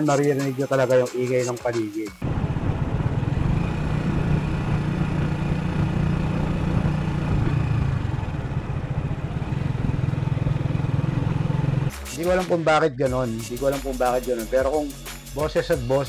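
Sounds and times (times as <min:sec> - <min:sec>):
road noise: 0:02.2 - 0:11.9
motorcycle engine running: 0:02.2 - 0:12.0.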